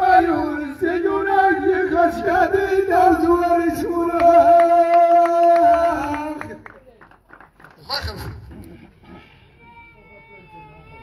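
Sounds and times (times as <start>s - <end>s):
men singing a chant: 0.0s - 6.6s.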